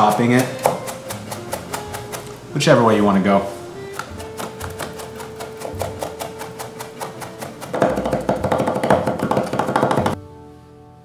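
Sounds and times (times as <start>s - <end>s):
cleaver chopping on wooden board: 0.0s - 2.3s, 4.0s - 10.2s
soft background music: 0.0s - 11.0s.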